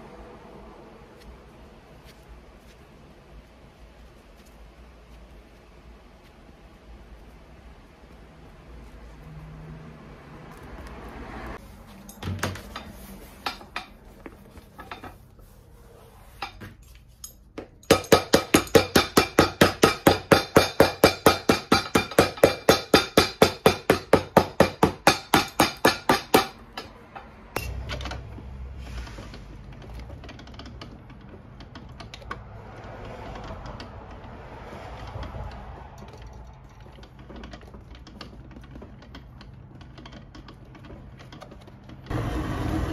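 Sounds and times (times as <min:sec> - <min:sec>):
hammer beating leather: 0:17.6 - 0:26.6.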